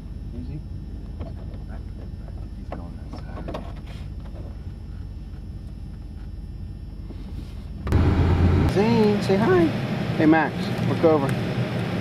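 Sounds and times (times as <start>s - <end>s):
car engine idling: 7.8s - 9.7s.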